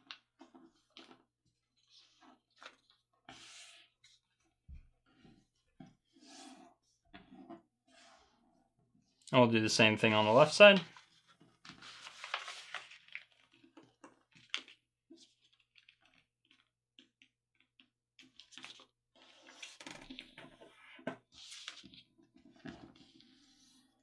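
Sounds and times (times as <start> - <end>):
paper rustling and crackling: 10.4 - 16.7.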